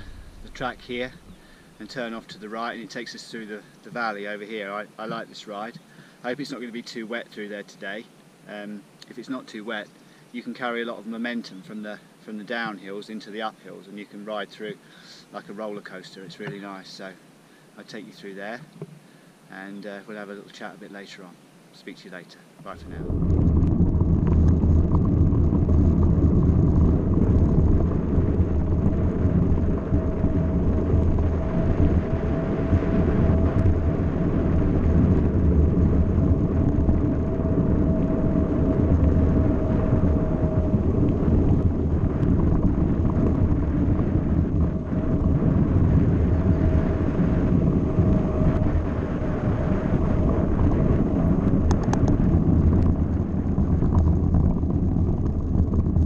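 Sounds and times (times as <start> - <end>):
wind on microphone: 0.0 - 3.3, 22.6 - 56.0
bike rolling over gravel: 22.8 - 56.0.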